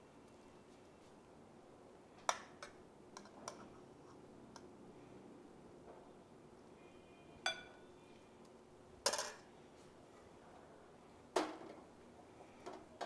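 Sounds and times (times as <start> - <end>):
spoon clinking against dishes: 7.4 - 7.9.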